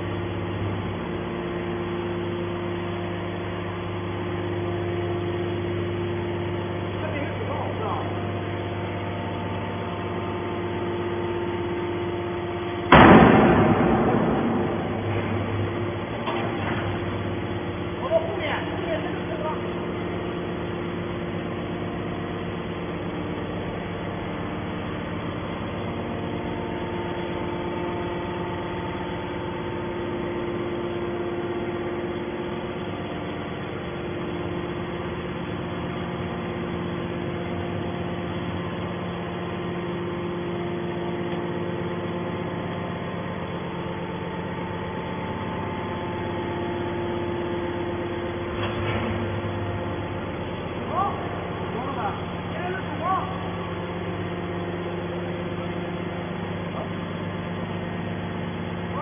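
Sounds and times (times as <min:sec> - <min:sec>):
hydraulic baler humming: 0:00.0 - 0:59.0.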